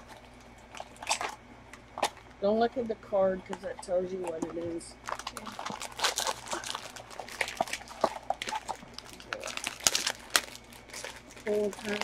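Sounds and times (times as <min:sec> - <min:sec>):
foil bags crinkling and tearing: 0:05.0 - 0:12.0.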